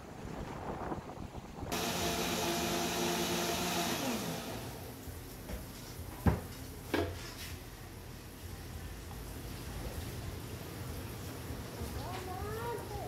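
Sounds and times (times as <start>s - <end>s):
blender motor running: 1.7s - 5.0s.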